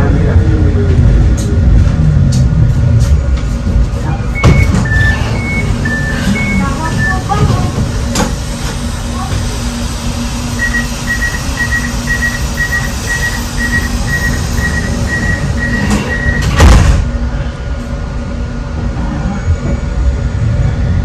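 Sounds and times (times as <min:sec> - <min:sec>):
door warning beeps: 0:04.3 - 0:07.7, 0:10.6 - 0:16.6
sliding doors shutting with thud: 0:04.4 - 0:09.5, 0:15.2 - 0:17.1.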